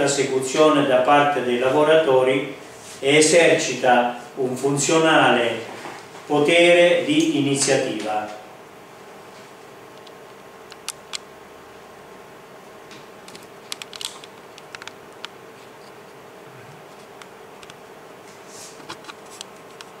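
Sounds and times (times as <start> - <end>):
steady hum: 0.0 - 20.0
small clicks and taps: 12.9 - 15.4.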